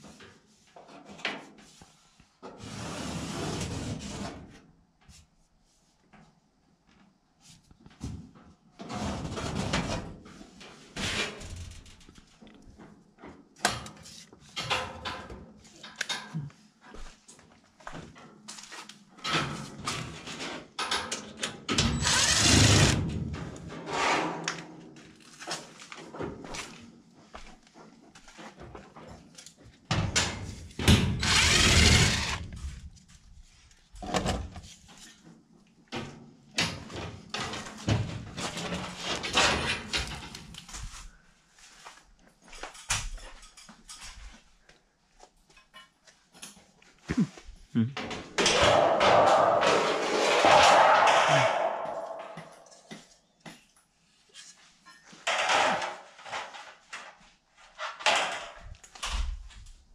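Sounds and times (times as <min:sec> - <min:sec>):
cordless drill driving screws: 0:22.0 - 0:23.0, 0:31.2 - 0:32.4
sheet metal knocks and rattles: 0:48.0 - 0:53.0.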